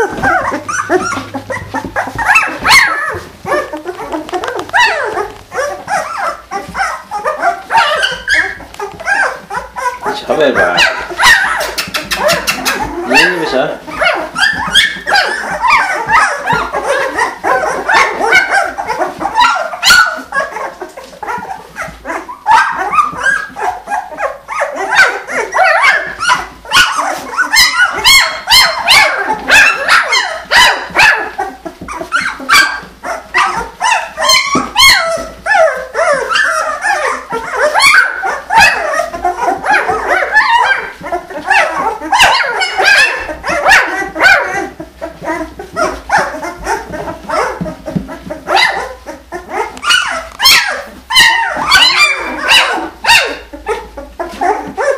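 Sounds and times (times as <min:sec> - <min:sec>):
puppies crying and squeaking: 0:00.0 - 0:54.9.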